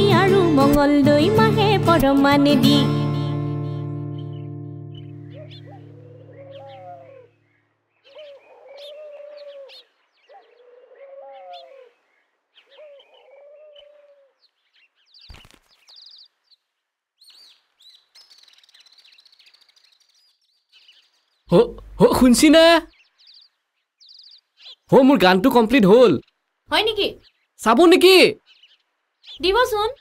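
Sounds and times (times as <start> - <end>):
small birds chirping: 0.0 - 30.0
bird low call: 2.8 - 14.5.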